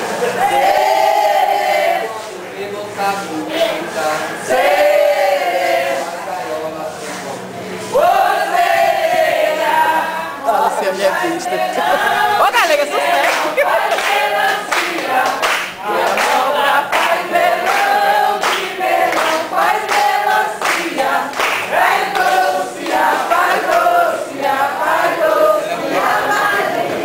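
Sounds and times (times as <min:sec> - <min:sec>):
group singing without instruments: 0:00.0 - 0:27.0
hand clapping: 0:05.9 - 0:07.4, 0:13.0 - 0:25.0.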